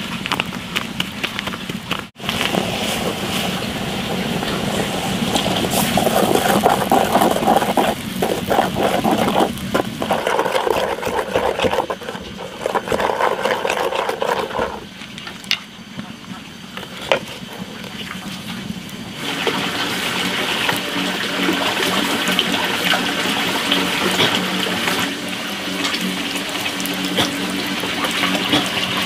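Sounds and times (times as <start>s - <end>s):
chopsticks scraping metal pot: 5.4s - 14.8s.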